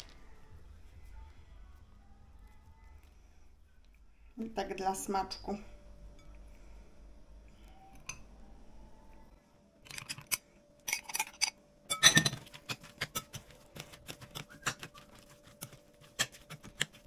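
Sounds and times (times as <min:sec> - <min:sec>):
kitchen utensils clinking: 0:09.8 - 0:13.4.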